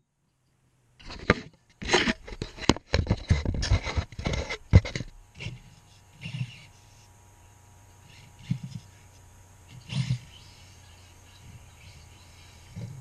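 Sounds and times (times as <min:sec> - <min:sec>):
toy car knocking and scraping: 0:01.0 - 0:05.6, 0:08.2 - 0:08.9.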